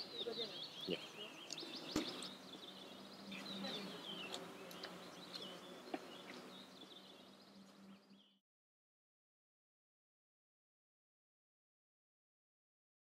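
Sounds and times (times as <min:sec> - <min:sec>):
small birds chirping: 0:00.0 - 0:08.4.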